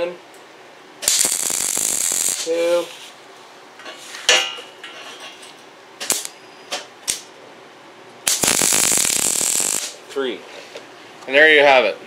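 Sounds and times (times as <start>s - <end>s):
welding arc hissing: 1.0s - 3.2s, 6.0s - 6.3s, 8.2s - 10.0s.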